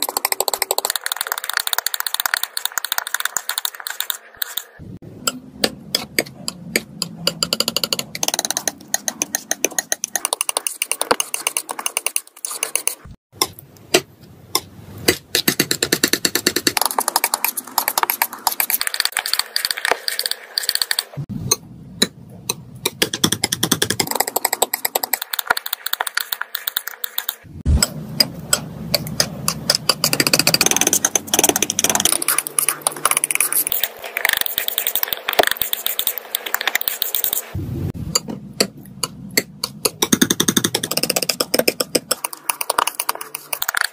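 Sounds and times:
palette knife scraping thick paint: 8.5 - 13.2.

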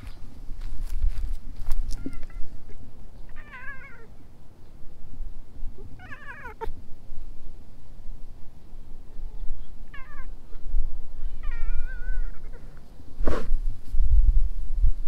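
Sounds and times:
cat meowing: 1.9 - 2.5, 3.3 - 4.1, 5.9 - 6.7, 9.9 - 10.4, 11.2 - 12.7
low microphone rumble: 4.4 - 15.0.

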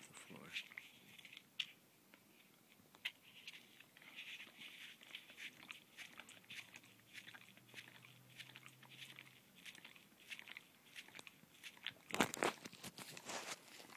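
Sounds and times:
dog chewing foam cup: 3.0 - 13.9.

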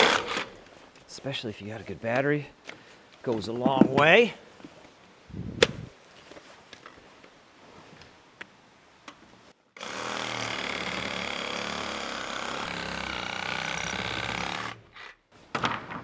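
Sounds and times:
circular saw cutting wood: 0.0 - 0.5, 9.8 - 15.2.

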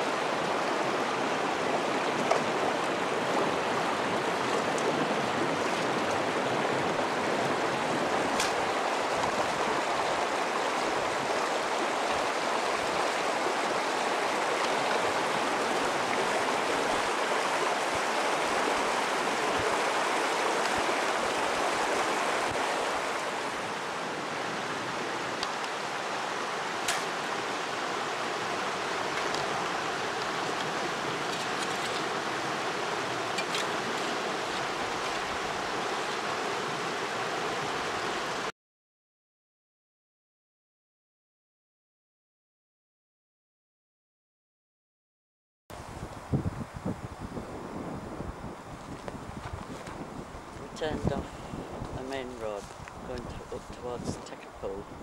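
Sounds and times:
river rushing over stones: 0.0 - 38.5.

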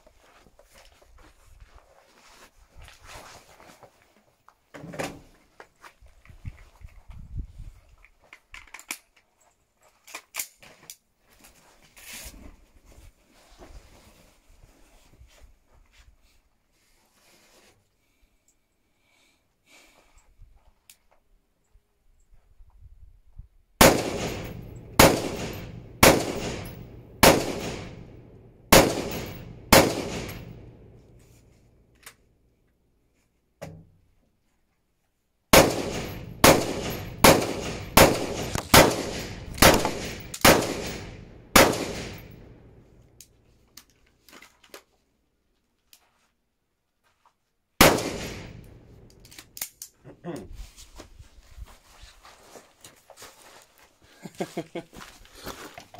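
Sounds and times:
rifle firing single shots: 23.8 - 31.0, 35.5 - 42.8, 47.8 - 49.4.

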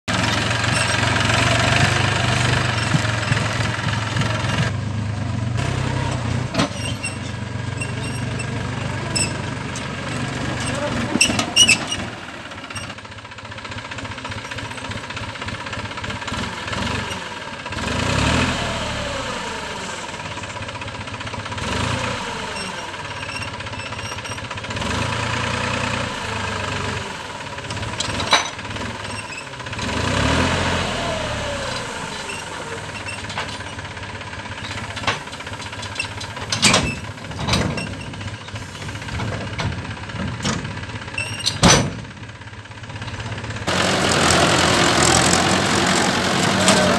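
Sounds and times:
tractor engine revving: 0.0 - 46.9
sharp knocks of load shifting: 34.6 - 42.3.

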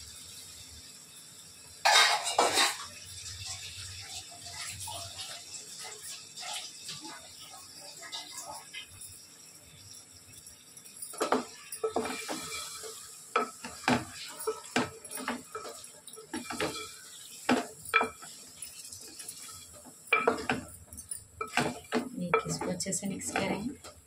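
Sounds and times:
faint sizzle: 0.0 - 24.0
metal spoon scraping a pot: 11.2 - 23.8.

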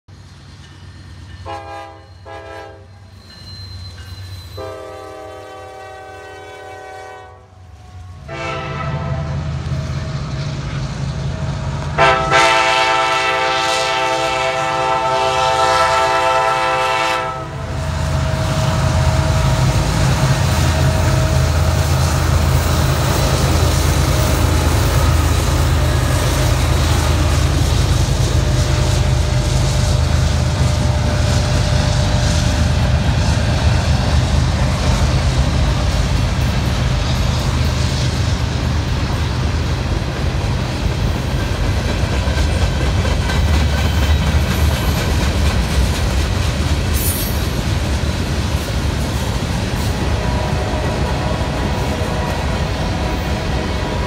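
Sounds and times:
diesel locomotive rumble: 0.1 - 54.0
train horn blast: 1.4 - 3.2, 4.5 - 10.4, 11.6 - 33.6, 49.8 - 54.0.

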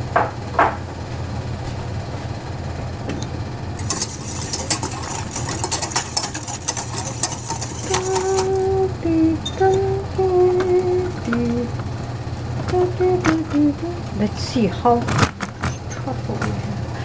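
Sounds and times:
steady low hum: 0.0 - 17.0
whisk scraping a metal pan: 3.8 - 8.7
woman humming: 7.8 - 11.8, 12.6 - 14.6.

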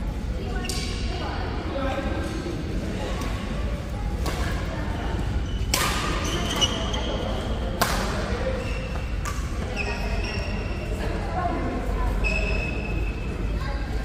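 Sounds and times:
chatter in sports hall: 0.0 - 14.0
shoe squeaks on court floor: 5.4 - 7.6, 8.5 - 10.8, 12.2 - 13.1.

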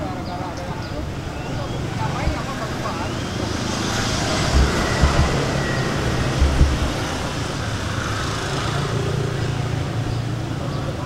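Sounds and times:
dull low thumps: 3.4 - 7.9.

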